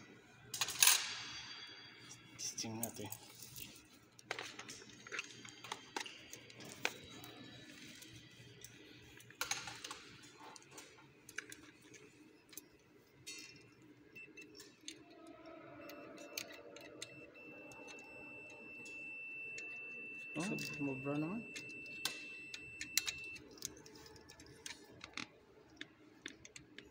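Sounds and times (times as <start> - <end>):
multimeter continuity beep: 13.6 - 23.5.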